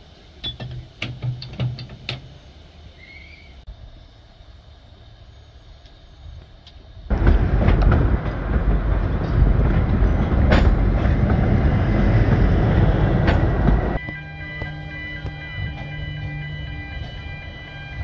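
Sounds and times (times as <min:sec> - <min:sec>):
train wheels rumbling and rattling: 0:00.0 - 0:18.0
music: 0:14.0 - 0:18.0.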